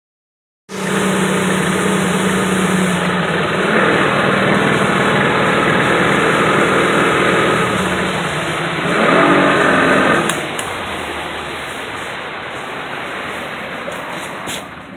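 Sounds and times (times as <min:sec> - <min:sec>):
motor boat engine running: 0:00.7 - 0:14.9
water rushing along hull: 0:00.7 - 0:14.9.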